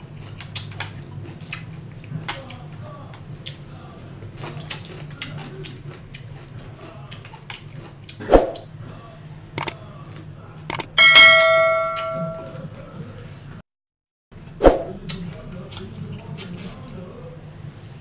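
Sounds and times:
chewing and lip-smacking: 0.0s - 9.0s, 9.6s - 10.9s, 15.0s - 17.2s
low hum: 10.7s - 12.7s.

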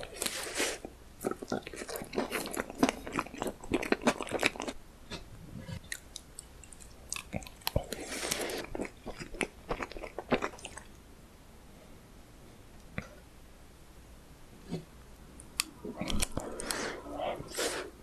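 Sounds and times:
person chewing cake: 0.0s - 5.2s, 5.8s - 11.0s, 15.8s - 17.5s.

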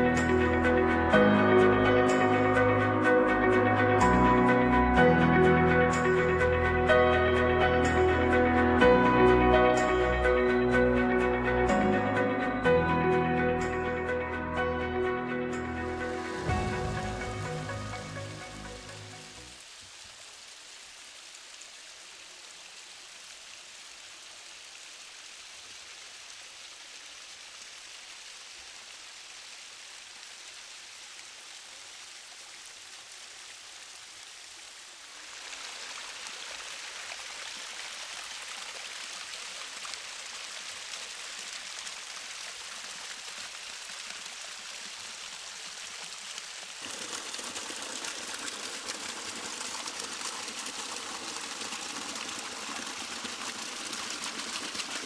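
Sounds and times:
waterfall splashing over rock: 16.2s - 55.0s.

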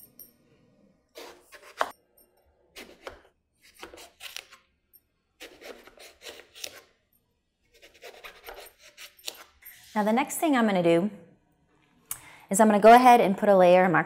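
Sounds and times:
knife slicing eggplant: 2.8s - 4.6s, 5.4s - 6.9s.

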